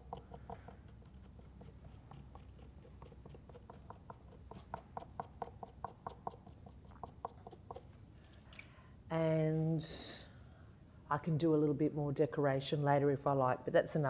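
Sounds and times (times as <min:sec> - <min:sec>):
marker scratching: 0:00.0 - 0:07.9.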